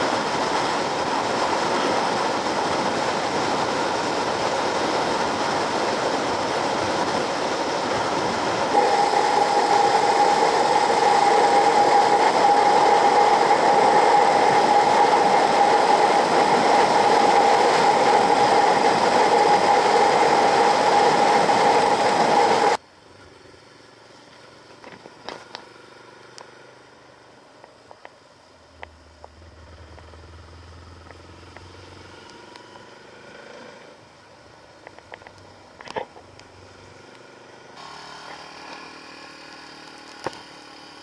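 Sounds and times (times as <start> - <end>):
rushing wind: 0.0 - 22.8
steady whine: 0.0 - 22.8, 27.2 - 33.0
motorcycle riding: 28.8 - 34.1.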